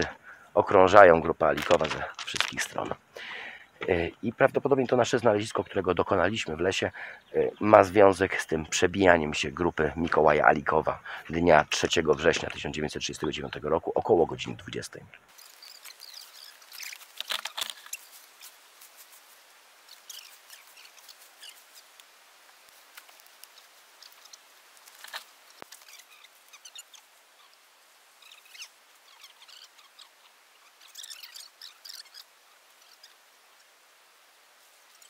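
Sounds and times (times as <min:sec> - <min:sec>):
footsteps crackling dry leaves: 0:01.5 - 0:02.9, 0:15.3 - 0:26.6.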